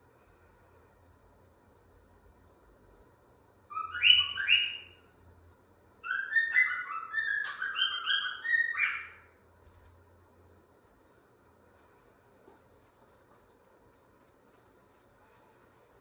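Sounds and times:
bird whistling: 0:03.7 - 0:05.0, 0:06.0 - 0:09.3.

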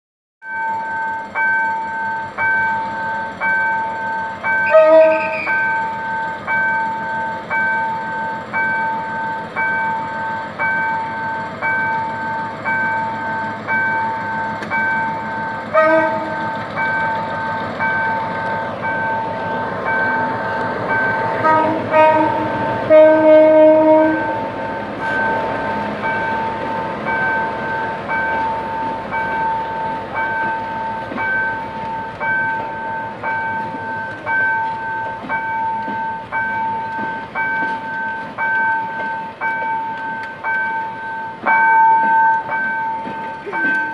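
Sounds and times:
level-crossing warning bell: 0:00.4 - 0:43.9
train coaches rumbling on rails: 0:00.5 - 0:43.9
locomotive horn: 0:04.6 - 0:05.6, 0:15.7 - 0:16.5, 0:21.2 - 0:25.2.

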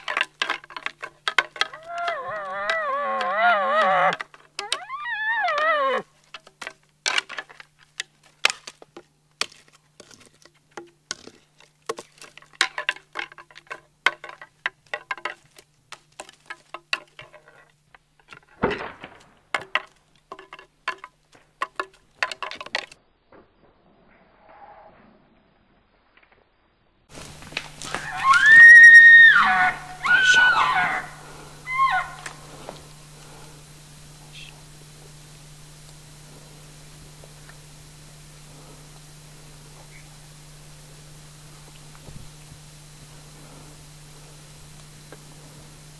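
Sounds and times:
high wavering elk call: 0:00.0 - 0:06.3, 0:27.8 - 0:35.2
twigs crackling underfoot: 0:00.0 - 0:23.0, 0:27.1 - 0:45.9.

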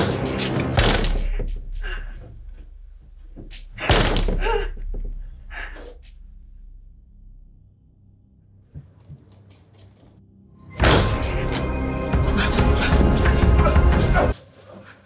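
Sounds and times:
door slamming shut: 0:00.6 - 0:01.6, 0:03.8 - 0:05.2, 0:10.8 - 0:11.5.

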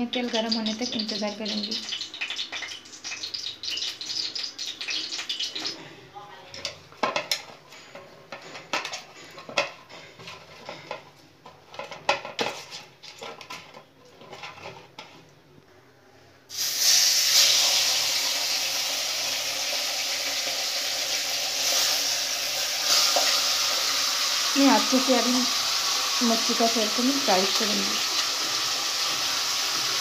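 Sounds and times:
fish sizzling in hot oil: 0:00.0 - 0:05.8, 0:16.5 - 0:30.0.

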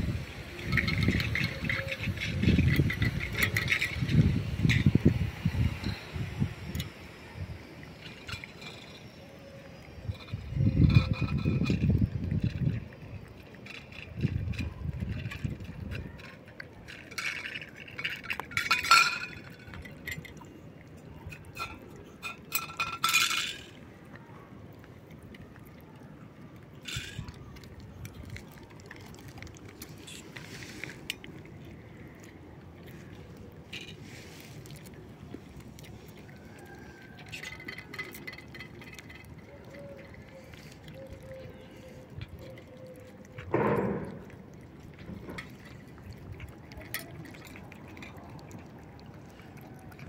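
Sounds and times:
cats chewing and licking: 0:00.0 - 0:23.0, 0:23.7 - 0:50.0
steady background noise: 0:00.0 - 0:50.0
clinks against metal plate: 0:18.1 - 0:20.3.

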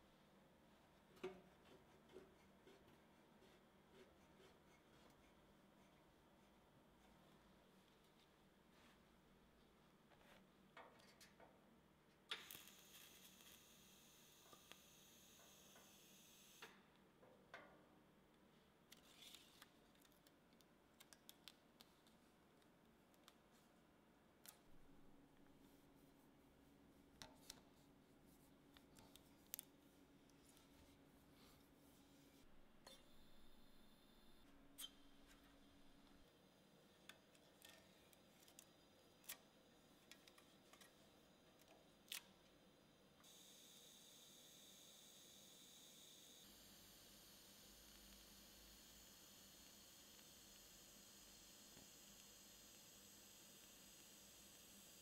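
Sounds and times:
faint clicks and taps: 0:19.6 - 0:23.7.

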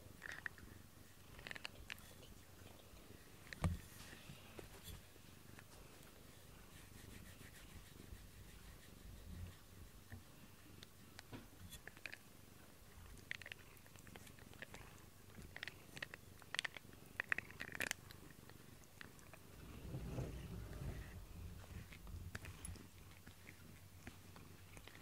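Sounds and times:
cat purring: 0:11.8 - 0:25.0.

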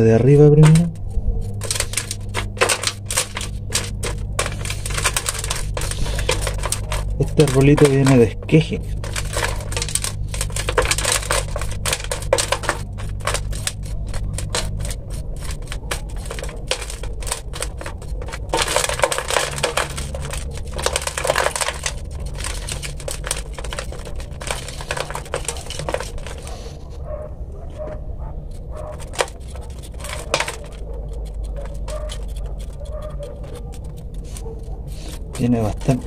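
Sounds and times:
rake scraping soil from roots: 0:00.0 - 0:27.1, 0:28.4 - 0:36.0
grains falling into plastic tub: 0:01.6 - 0:26.5, 0:28.9 - 0:30.8.

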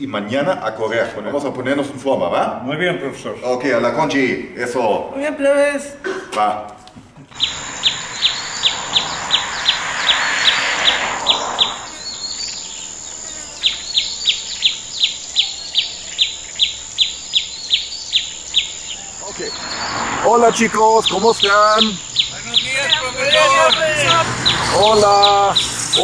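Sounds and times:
bird chirping: 0:07.3 - 0:26.0
high insect-like whine: 0:07.3 - 0:26.0.

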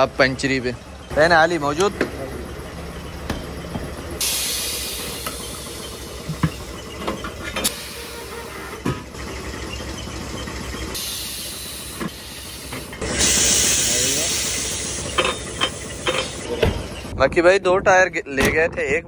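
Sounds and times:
metal tyre tools clanking: 0:00.0 - 0:17.1
compressed air hissing: 0:04.2 - 0:06.2, 0:11.0 - 0:16.5.

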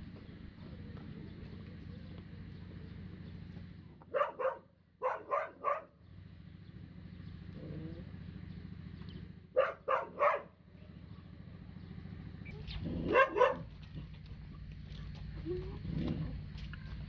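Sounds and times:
dog barking: 0:04.0 - 0:06.0, 0:09.5 - 0:10.6, 0:12.9 - 0:13.8.

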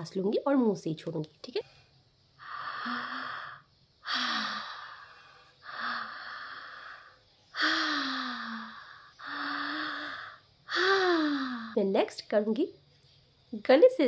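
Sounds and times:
woman breathing through mouth: 0:02.4 - 0:11.8.

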